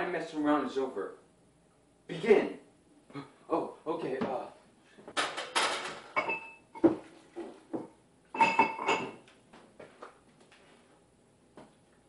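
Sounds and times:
dishes clattering: 0:05.1 - 0:07.1, 0:07.8 - 0:09.3.

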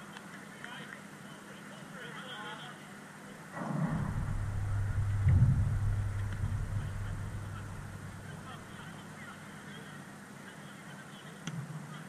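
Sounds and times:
low rumble: 0:03.6 - 0:09.0.

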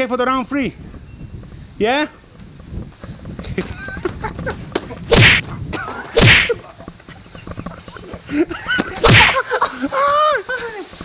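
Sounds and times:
boxing glove punches: 0:05.1 - 0:05.4, 0:06.2 - 0:06.6, 0:09.0 - 0:09.4.

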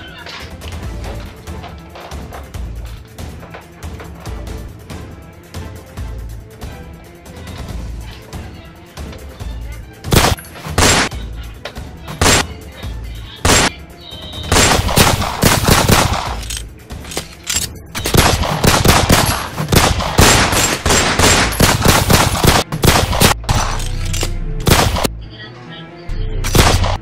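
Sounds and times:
rapid gunfire: 0:10.1 - 0:11.1, 0:12.2 - 0:12.5, 0:13.4 - 0:13.8, 0:14.5 - 0:16.5, 0:18.0 - 0:23.8, 0:24.6 - 0:25.1, 0:26.5 - 0:27.0.

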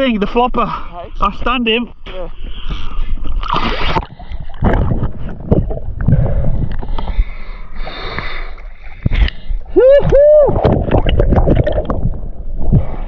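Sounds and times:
water sloshing and splashing: 0:02.8 - 0:09.6, 0:10.5 - 0:13.0.

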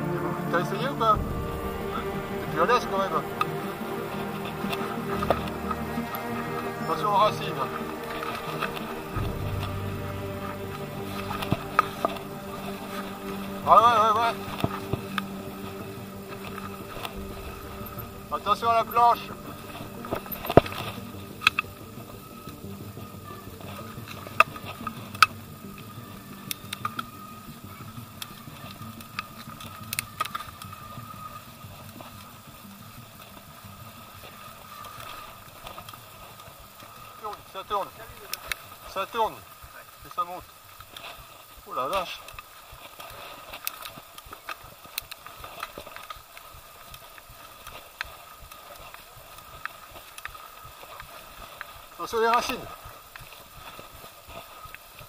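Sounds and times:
bike tyres on dirt trail: 0:00.0 - 0:55.0
faint steady whine: 0:00.0 - 0:55.0.

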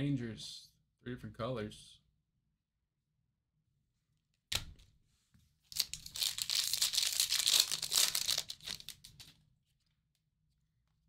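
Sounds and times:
plastic wrapper tearing and crinkling: 0:05.7 - 0:09.4.

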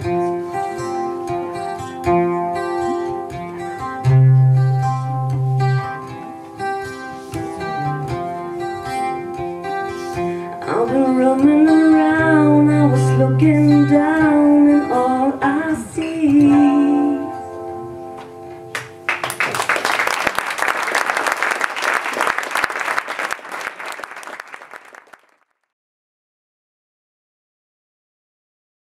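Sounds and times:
acoustic guitar: 0:00.0 - 0:19.2
woman singing: 0:10.6 - 0:17.6
audience clapping: 0:18.7 - 0:25.7.

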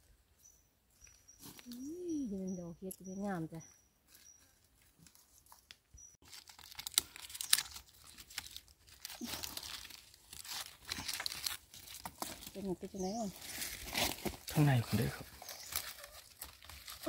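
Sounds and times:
rustling and tearing with crackles: 0:04.8 - 0:17.0.

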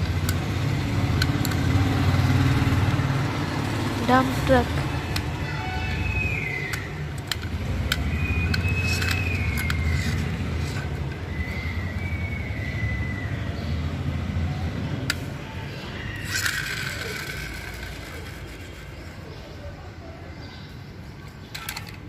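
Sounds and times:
sharp clicks: 0:00.0 - 0:03.0, 0:04.4 - 0:12.1
toy wheels rolling on stone: 0:00.0 - 0:13.6, 0:14.4 - 0:20.3, 0:21.0 - 0:22.0
thin high squeaks: 0:04.9 - 0:12.2.

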